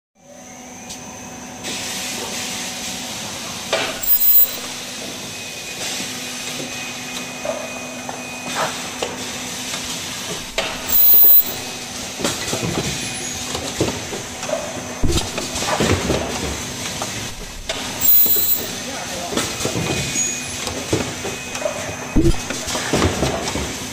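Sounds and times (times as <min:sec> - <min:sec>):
loud high-pitched bursts: 0:04.0 - 0:04.8, 0:10.5 - 0:11.8, 0:17.3 - 0:18.9
machine hum: 0:10.4 - 0:11.8, 0:15.0 - 0:15.6, 0:17.3 - 0:18.9, 0:22.2 - 0:22.7
conveyor clicks and knocks: 0:15.0 - 0:15.7, 0:22.2 - 0:22.7.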